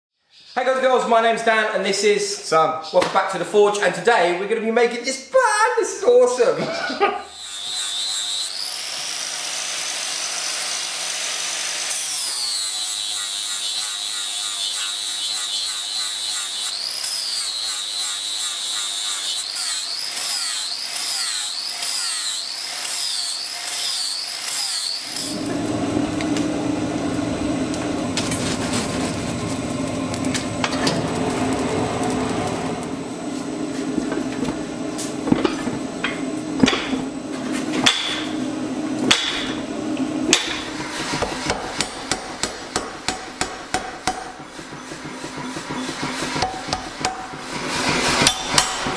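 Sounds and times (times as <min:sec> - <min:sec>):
angle grinder grinding metal: 0:06.7 - 0:32.9, 0:34.1 - 0:48.9
gas forge burner rushing: 0:25.2 - 0:42.9, 0:43.6 - 0:48.9.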